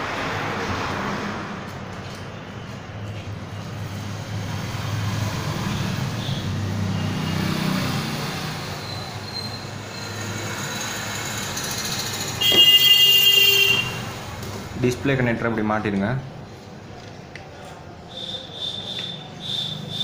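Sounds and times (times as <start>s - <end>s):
road traffic rumble: 0.0s - 20.0s
vehicle horn: 12.4s - 14.1s.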